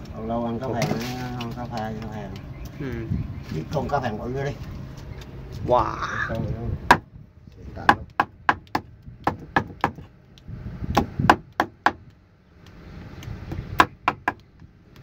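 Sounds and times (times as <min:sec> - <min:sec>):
cleaver chopping fish on wood: 0:06.9 - 0:07.1, 0:07.8 - 0:10.1, 0:10.9 - 0:12.1, 0:13.5 - 0:14.5.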